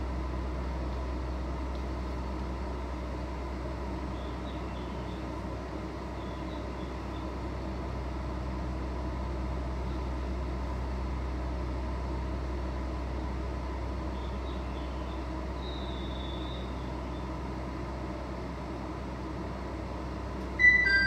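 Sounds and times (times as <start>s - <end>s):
electric train humming: 19.7s - 21.0s
faint high chirps: 20.6s - 21.0s.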